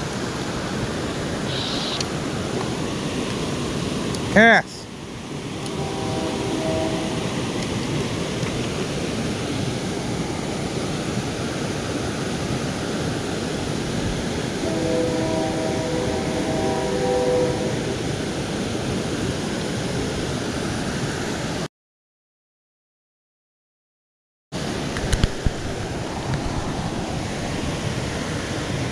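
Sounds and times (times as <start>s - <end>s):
water rushing over rapids: 0.0s - 21.7s, 24.6s - 28.9s
faint pitched tones: 14.6s - 18.0s.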